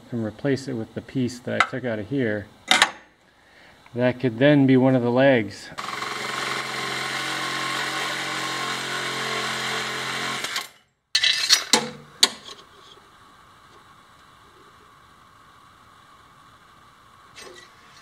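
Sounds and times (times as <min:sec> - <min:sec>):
reciprocating saw cutting metal: 0:05.8 - 0:11.5.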